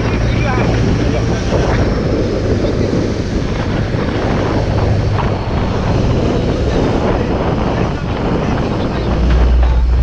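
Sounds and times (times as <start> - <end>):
motorboat engine humming: 0.0 - 10.0
rush of boat wake: 0.0 - 10.0
wind on microphone: 0.0 - 10.0.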